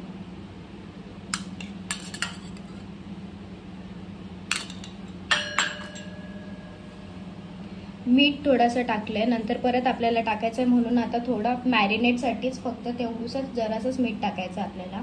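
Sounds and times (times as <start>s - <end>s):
steady low hum: 0.0s - 15.0s
spoon clinking against steel bowls: 1.3s - 2.9s, 4.5s - 6.8s.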